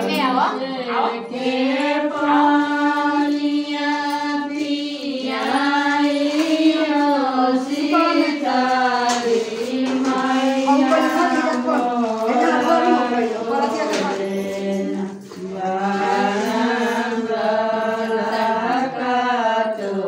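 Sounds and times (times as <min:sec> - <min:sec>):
women singing unaccompanied: 0:00.0 - 0:20.0.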